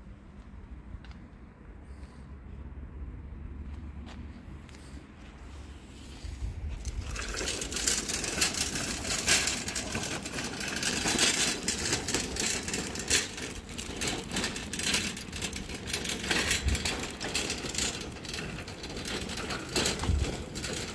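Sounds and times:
wire shopping cart rattling: 0:06.7 - 0:20.9.

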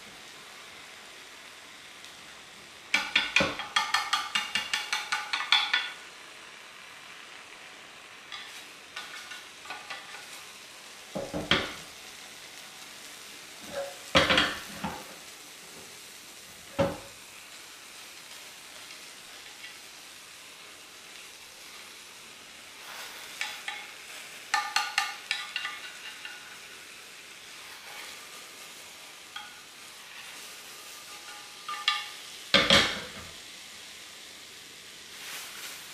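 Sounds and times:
egg sizzling in a pan: 0:00.0 - 0:35.9
chopsticks clinking on metal pan: 0:02.9 - 0:06.0, 0:08.3 - 0:10.4, 0:23.4 - 0:26.6, 0:29.3 - 0:29.7, 0:30.9 - 0:33.3
pan knocking: 0:02.9 - 0:06.0, 0:11.2 - 0:11.8, 0:13.7 - 0:15.0, 0:24.5 - 0:26.0, 0:31.0 - 0:33.3.

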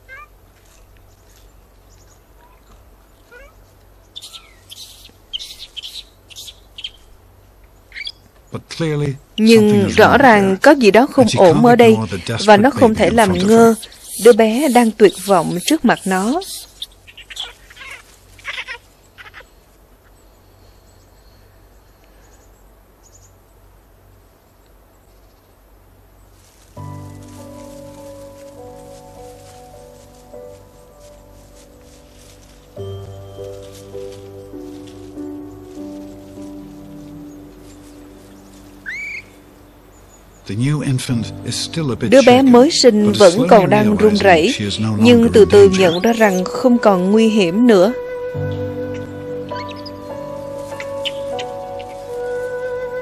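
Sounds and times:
infant monkey shrill chirping cries: 0:00.0 - 0:00.3, 0:03.3 - 0:03.6, 0:04.2 - 0:07.0, 0:07.9 - 0:08.2, 0:13.1 - 0:19.6, 0:38.8 - 0:39.4, 0:48.3 - 0:52.3
infant monkey squeaking: 0:00.0 - 0:00.3, 0:03.3 - 0:03.6, 0:04.2 - 0:07.0, 0:07.9 - 0:08.2, 0:11.8 - 0:19.6, 0:38.8 - 0:39.4, 0:48.4 - 0:52.4.

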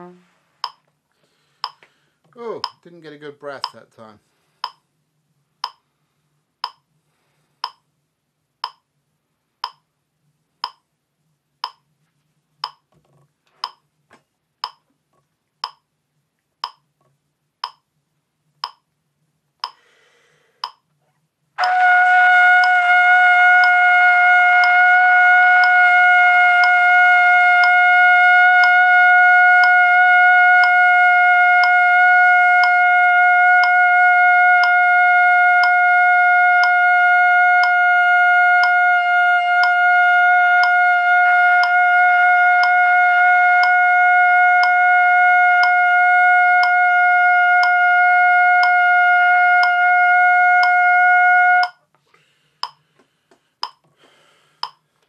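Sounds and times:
metronome clicks: 0:00.6 - 0:00.9, 0:01.6 - 0:01.9, 0:02.6 - 0:02.8, 0:03.6 - 0:03.8, 0:04.6 - 0:04.8, 0:05.6 - 0:05.9, 0:06.6 - 0:06.9, 0:07.6 - 0:07.9, 0:08.6 - 0:08.9, 0:09.6 - 0:09.9, 0:10.6 - 0:10.9, 0:11.6 - 0:11.9, 0:12.6 - 0:12.9, 0:13.6 - 0:13.9, 0:14.6 - 0:14.9, 0:15.6 - 0:15.9, 0:16.6 - 0:16.9, 0:17.6 - 0:17.9, 0:18.6 - 0:18.9, 0:19.6 - 0:19.8, 0:20.6 - 0:20.9, 0:52.6 - 0:52.8, 0:53.6 - 0:53.9, 0:54.6 - 0:54.8
trumpet long steady note: 0:21.6 - 0:51.7.

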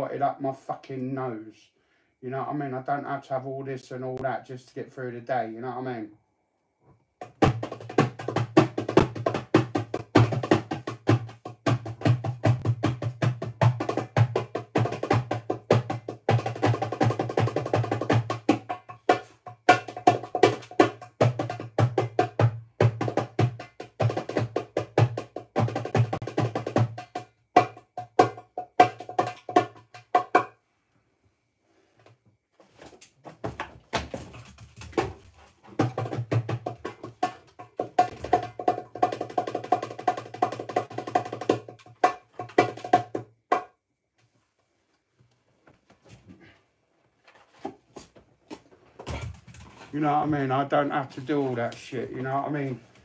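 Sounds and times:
fast drumming: 0:07.2 - 0:30.4, 0:34.9 - 0:43.2.

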